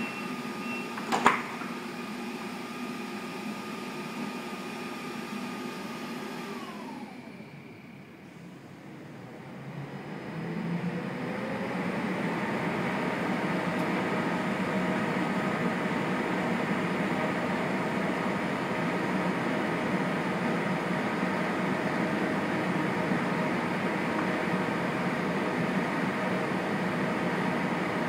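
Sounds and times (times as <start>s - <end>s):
train ventilation fans humming: 6.5s - 28.0s.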